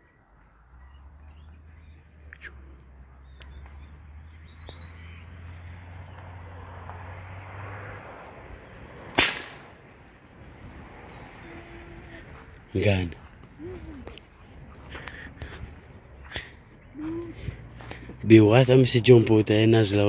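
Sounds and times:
birds chirping: 0.0 - 20.0
loud sharp bang: 9.1 - 9.8.

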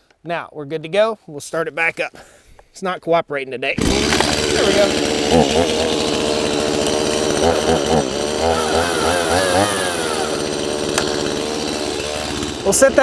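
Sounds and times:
chainsaw engine running: 3.8 - 13.0.

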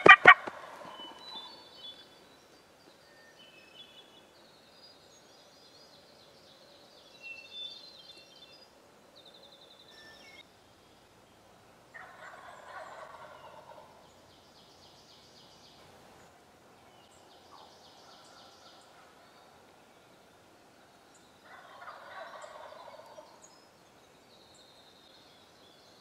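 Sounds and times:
hen turkey yelping: 0.0 - 1.4, 12.0 - 13.8
turkey gobbling: 0.0 - 1.5, 12.0 - 13.9, 21.5 - 23.3
songbirds trilling: 0.0 - 26.0.

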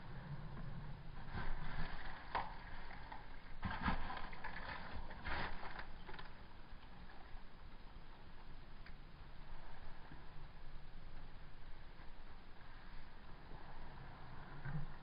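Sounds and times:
low rumble: 0.0 - 15.0
footsteps crunching on rubble: 3.6 - 6.3.

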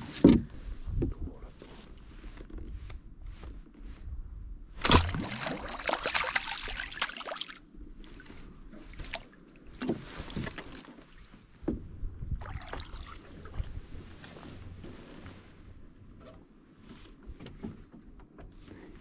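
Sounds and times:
water splashing: 4.8 - 7.7, 12.4 - 13.5.

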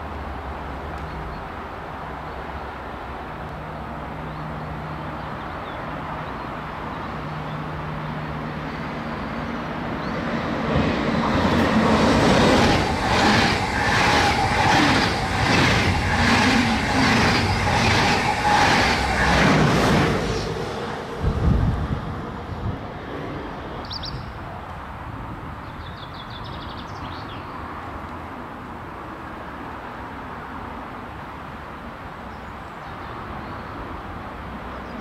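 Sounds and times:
electric train passing: 6.0 - 23.8
train wheels clacking: 11.2 - 20.4.

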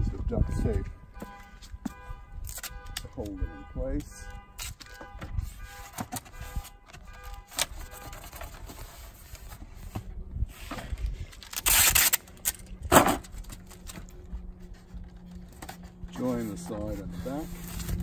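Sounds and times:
tape tearing: 2.4 - 3.0, 4.6 - 5.0, 11.0 - 14.1
rustling and clicking of tape: 2.4 - 3.3, 4.0 - 16.2
packing tape ripping off roll: 11.3 - 14.0.

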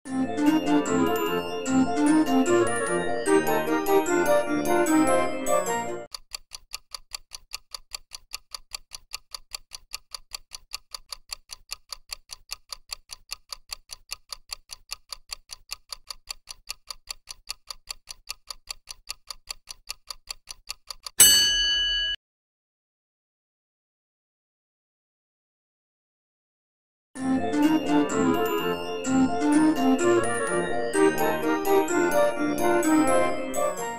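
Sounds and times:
fast clock ticking: 0.4 - 21.2, 27.5 - 33.8
bell-like ding: 21.2 - 22.2
organ-like tune: 27.2 - 33.9.

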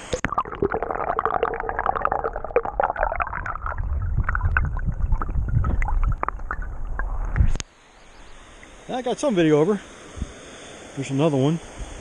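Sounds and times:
bubbly clicks and gurgles: 0.0 - 7.6
muffled underwater water rumble: 0.4 - 7.6.

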